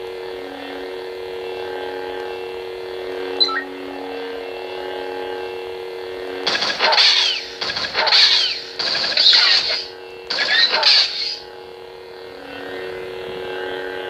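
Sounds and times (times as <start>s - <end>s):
electronic lightsaber hum: 0.0s - 14.0s
high chirp: 3.4s - 3.8s.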